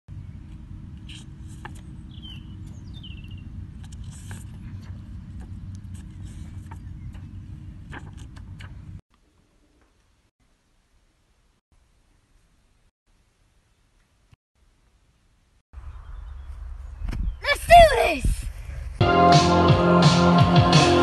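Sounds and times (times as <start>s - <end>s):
bird chirping: 2.0s - 3.6s, 15.8s - 17.4s
steady low rumble: 18.2s - 19.0s.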